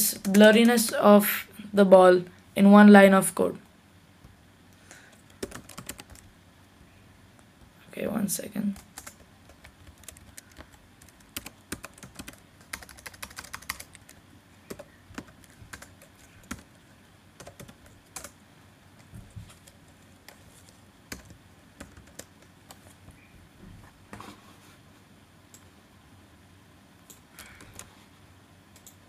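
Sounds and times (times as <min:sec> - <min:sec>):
computer keyboard typing: 0:00.0 - 0:01.1, 0:05.1 - 0:06.3, 0:08.7 - 0:16.8, 0:17.4 - 0:18.4, 0:19.0 - 0:23.0, 0:27.0 - 0:27.9, 0:28.7 - 0:29.0.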